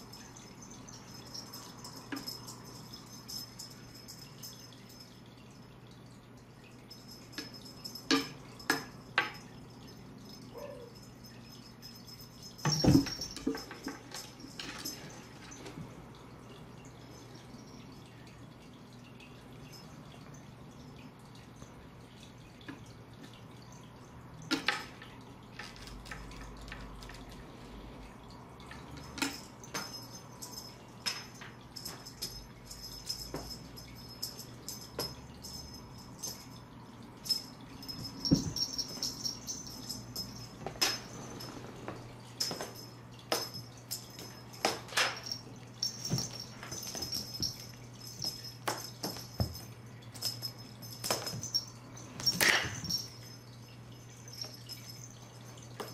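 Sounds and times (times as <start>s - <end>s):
collar charm jingling: 0.0s - 5.5s, 6.9s - 15.7s, 28.8s - 55.9s.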